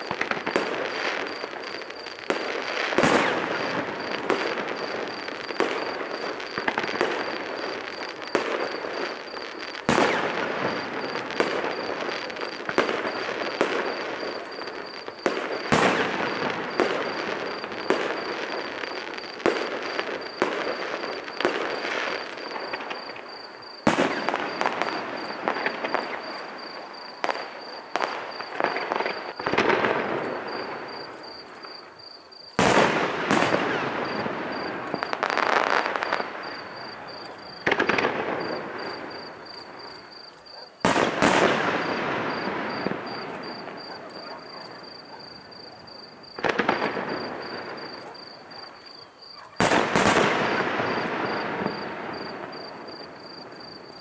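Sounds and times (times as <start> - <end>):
fireworks crackling: 0.0 - 49.0, 49.6 - 54.0.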